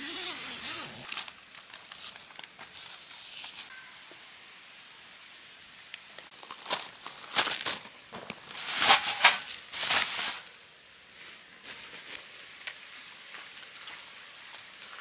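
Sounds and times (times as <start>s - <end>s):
plastic wrapping crinkling: 1.1s - 3.7s, 6.4s - 10.5s
footsteps on gravel: 6.3s - 10.2s, 11.3s - 15.0s.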